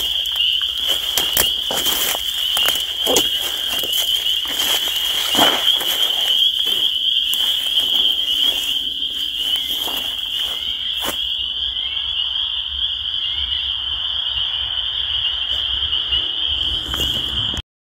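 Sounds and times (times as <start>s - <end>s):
frogs peeping in chorus: 0.0s - 17.6s.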